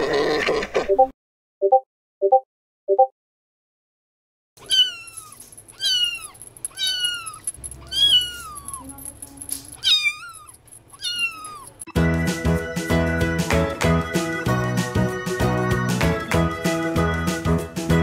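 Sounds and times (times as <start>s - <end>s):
kitten meowing: 4.6s - 9.0s, 9.8s - 11.9s
background music: 11.9s - 18.0s.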